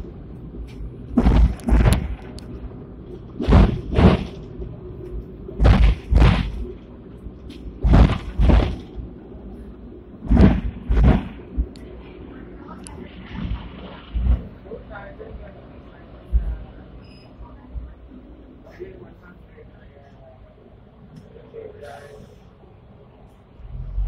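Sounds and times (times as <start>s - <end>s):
tram wheels clacking over rail joints: 0.0s - 9.6s, 10.2s - 17.9s
low running rumble: 0.0s - 24.0s.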